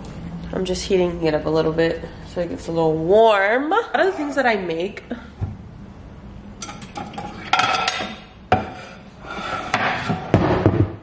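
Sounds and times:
ceramic plates clinking: 6.6s - 10.1s.

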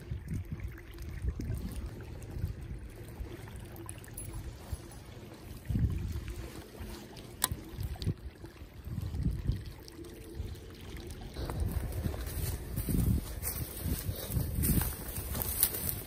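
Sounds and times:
footsteps through dry reeds: 4.4s - 7.4s, 11.4s - 16.0s.

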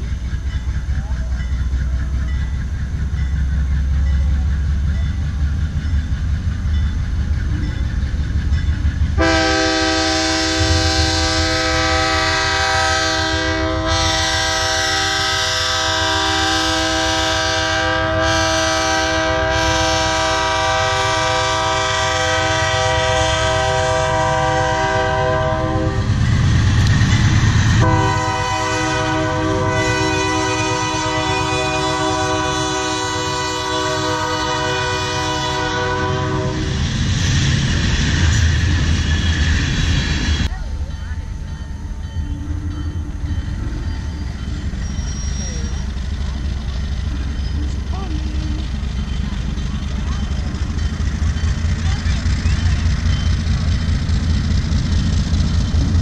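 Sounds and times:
diesel engine rumble: 0.0s - 18.4s, 19.4s - 56.0s
locomotive air horn: 9.2s - 26.2s, 27.7s - 36.9s.

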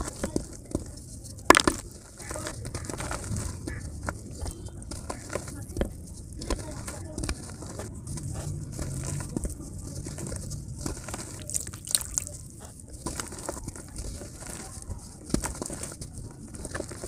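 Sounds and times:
hands crumbling dry mud: 0.0s - 17.0s
drips and small splashes: 11.5s - 12.3s.

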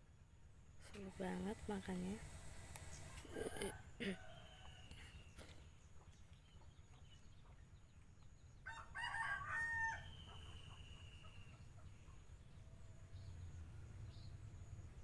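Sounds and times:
rooster crowing: 3.6s - 5.4s, 8.6s - 11.2s.

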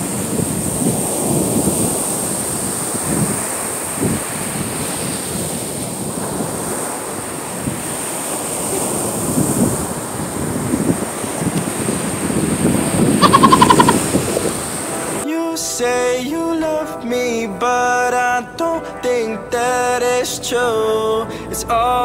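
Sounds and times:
wind buffeting microphone: 0.0s - 15.2s
ocean surf on beach: 0.0s - 15.3s.

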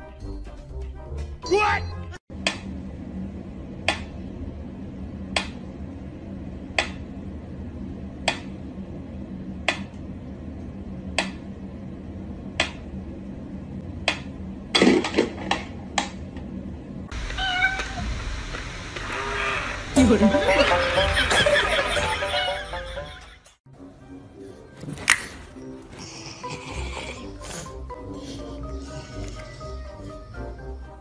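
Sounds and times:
cat meowing: 17.2s - 18.1s.

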